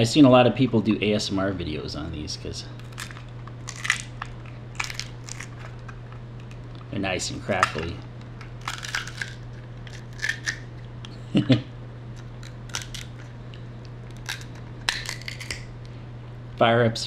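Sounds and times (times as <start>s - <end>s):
crab shell cracking: 2.8s - 6.8s, 7.5s - 11.0s, 12.2s - 13.4s, 14.0s - 15.7s.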